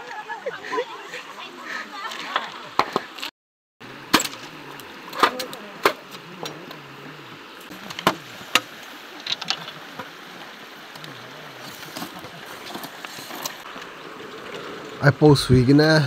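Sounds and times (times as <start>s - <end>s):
shallow river rushing: 3.8s - 16.0s.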